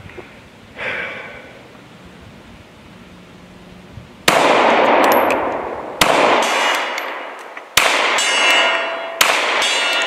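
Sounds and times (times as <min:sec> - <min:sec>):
pistol shots: 0:04.3 - 0:10.0
steel gong target ringing: 0:08.2 - 0:10.0.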